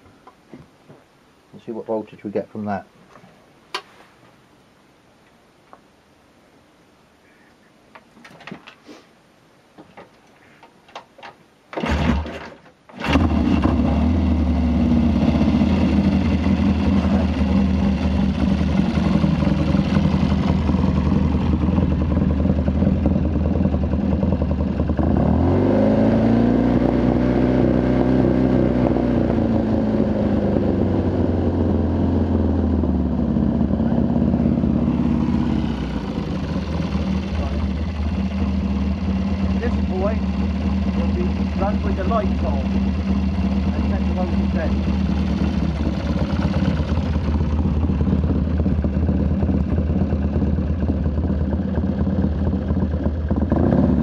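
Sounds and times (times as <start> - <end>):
motorcycle engine starting and revving: 11.7 - 54.0.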